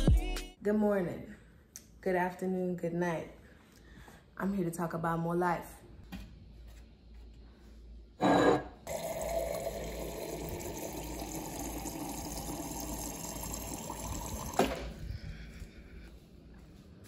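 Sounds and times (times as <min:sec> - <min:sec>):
water running into a vessel: 0:08.9 - 0:14.9.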